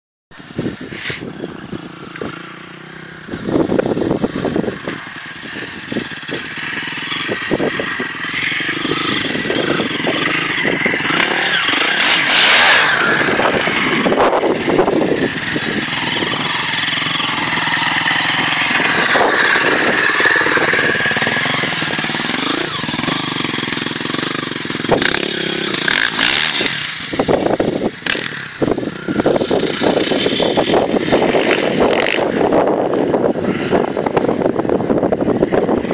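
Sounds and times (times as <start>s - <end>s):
dirt bike engine revving: 0.6s - 35.9s.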